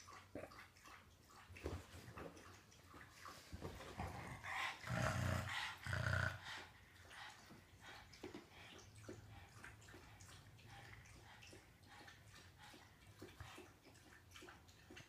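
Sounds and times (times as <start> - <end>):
dog growling: 4.0 - 6.6.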